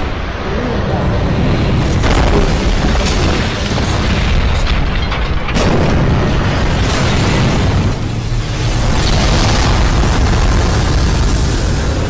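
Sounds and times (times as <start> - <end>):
explosion booms: 5.4 - 12.0.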